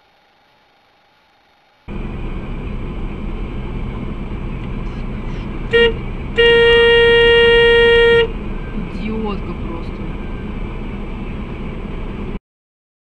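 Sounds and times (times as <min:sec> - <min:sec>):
car horn: 0:05.4 - 0:08.4.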